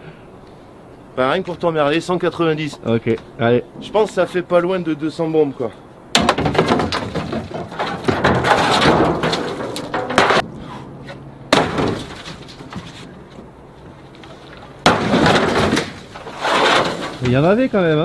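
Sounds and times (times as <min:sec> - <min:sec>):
scrap metal crashing onto pile: 0:06.2 - 0:10.4, 0:11.5 - 0:13.1, 0:14.8 - 0:17.5.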